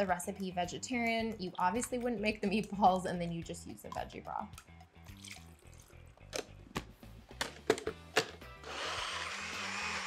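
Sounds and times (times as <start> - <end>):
blender motor running: 8.6 - 10.0.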